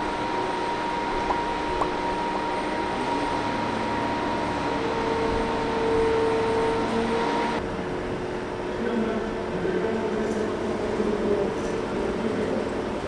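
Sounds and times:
held whining tone: 0.0 - 7.6
heavy machinery running: 0.0 - 7.7.

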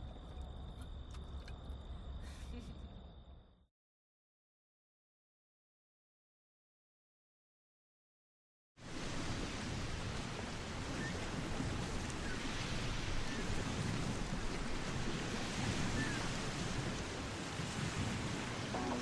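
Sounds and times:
ocean waves washing on shore: 8.8 - 19.0.

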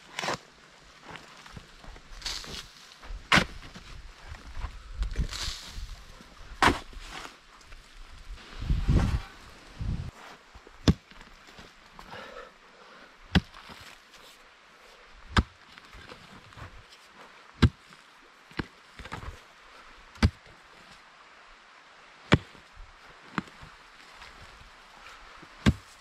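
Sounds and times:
pick striking soil: 1.9 - 3.9, 6.6 - 7.3, 25.6 - 26.0.

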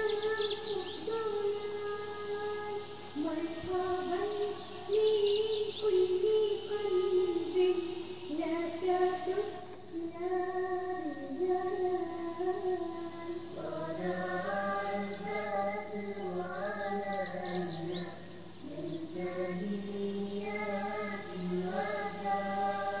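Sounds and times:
faint high chirps: 0.0 - 23.0
voices singing a slow chant: 0.0 - 23.0.

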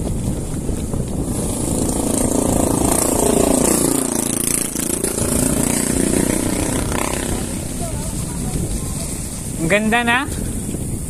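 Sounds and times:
wind rumble on microphone: 0.0 - 11.0
vehicle engine passing by: 1.2 - 9.1.

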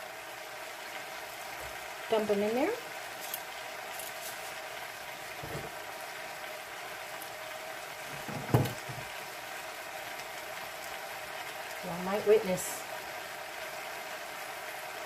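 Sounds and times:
stew bubbling in a pot: 2.8 - 15.0
dull kitchen knocks: 5.4 - 5.7, 8.1 - 9.1.

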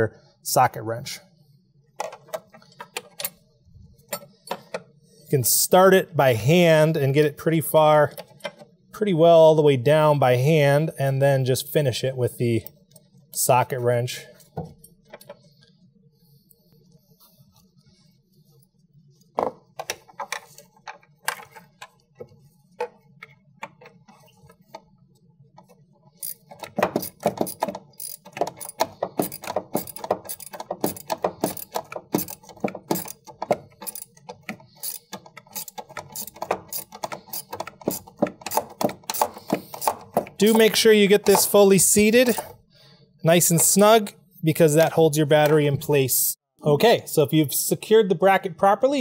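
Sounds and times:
ratchet wrench clicking: 26.2 - 40.7.

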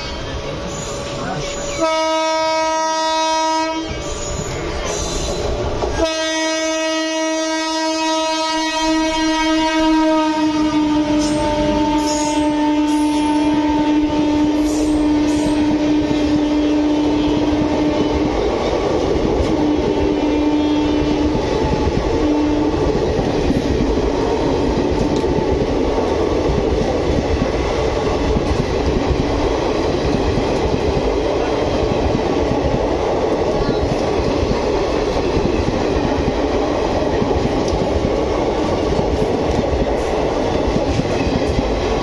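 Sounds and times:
train wheels rumbling on rails: 0.0 - 42.0
locomotive horn: 1.8 - 4.5, 6.0 - 18.2, 19.5 - 21.4.

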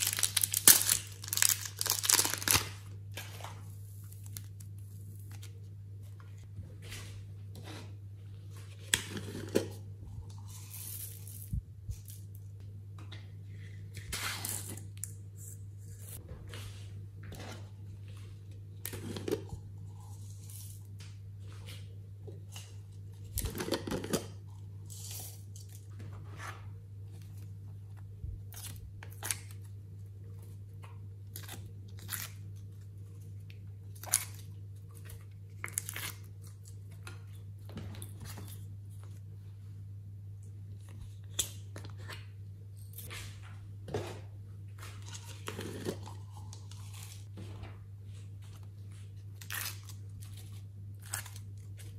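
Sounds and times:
plastic crinkling rustles: 0.0 - 2.8
steady low hum: 0.0 - 51.9.

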